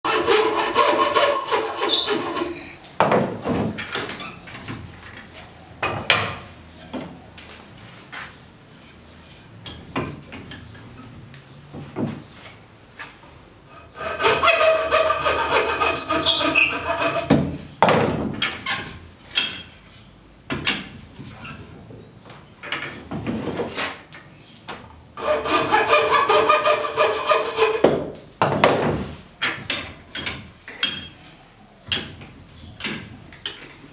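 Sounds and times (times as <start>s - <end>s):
hand tool scraping wood: 0.1s - 2.8s, 13.7s - 17.5s, 25.2s - 28.0s.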